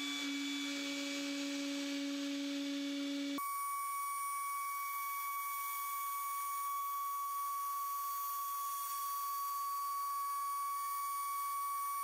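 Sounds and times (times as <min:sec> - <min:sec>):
router spindle high whine: 0:00.0 - 0:12.0.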